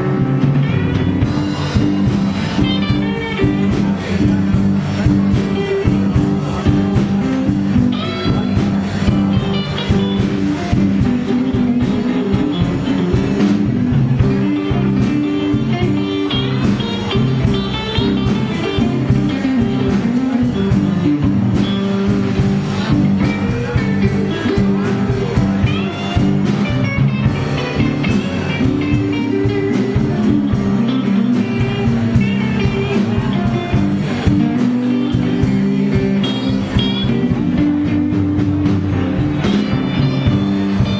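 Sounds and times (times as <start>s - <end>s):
lead guitar bending notes: 0.0s - 40.9s
live blues band playing: 0.0s - 40.9s.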